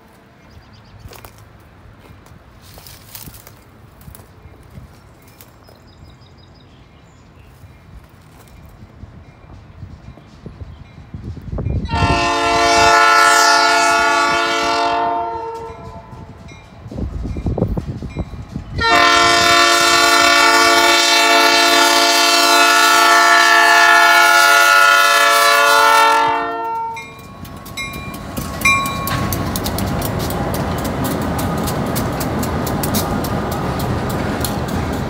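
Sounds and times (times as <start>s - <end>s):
locomotive air horn blasts: 11.8s - 16.4s, 18.8s - 27.2s.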